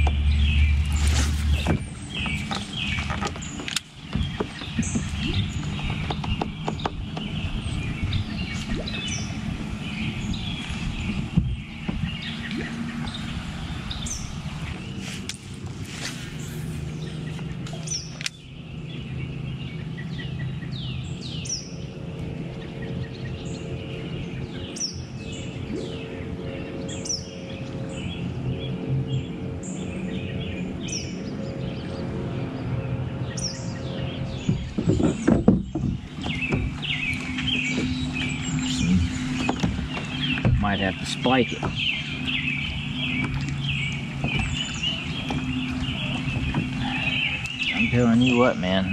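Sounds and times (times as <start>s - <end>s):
songbirds chirping: 0.0s - 48.9s
steady low hum: 0.0s - 48.9s
knocking and rustling: 34.4s - 38.2s, 39.0s - 40.6s.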